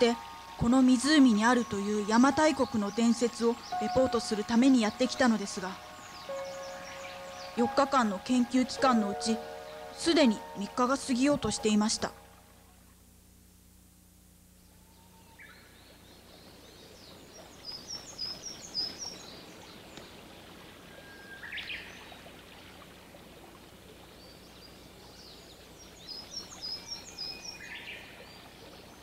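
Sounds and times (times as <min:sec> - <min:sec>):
birds chirping: 0:00.0 - 0:12.4
faint outdoor background hiss: 0:00.0 - 0:29.0.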